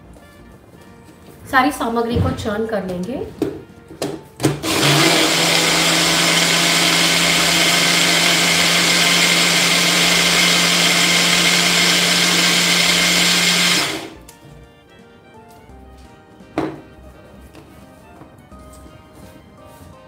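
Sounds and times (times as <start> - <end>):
blender motor whirring: 4.6 - 14.2.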